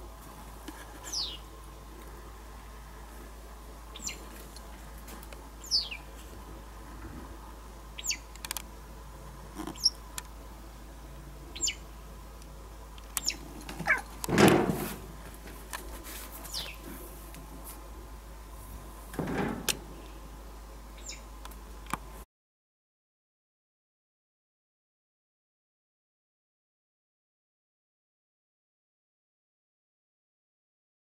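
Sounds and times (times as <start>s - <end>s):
wagtail calling: 1.0s - 1.4s, 3.9s - 4.3s, 5.6s - 6.1s, 8.0s - 8.6s, 11.5s - 11.9s, 13.1s - 14.2s, 21.0s - 21.3s.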